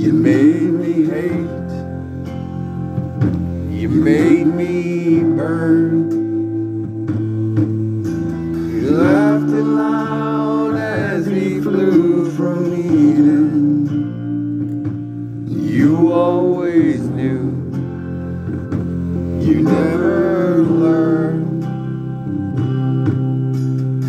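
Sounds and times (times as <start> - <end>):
guitar-backed song: 0.0 - 24.0
person singing long notes: 8.7 - 14.1, 19.2 - 22.1.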